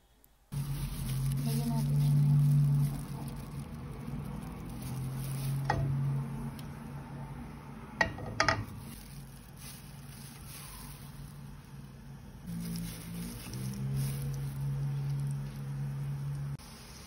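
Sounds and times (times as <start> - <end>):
clinks at a frying pan: 8.0 - 8.8.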